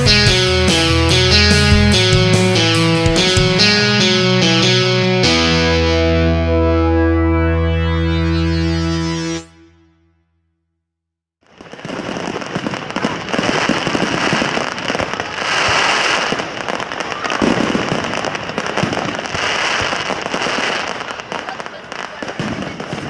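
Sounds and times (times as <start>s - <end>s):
distorted electric guitar chord: 0.0s - 10.0s
fireworks crackling: 11.4s - 23.0s.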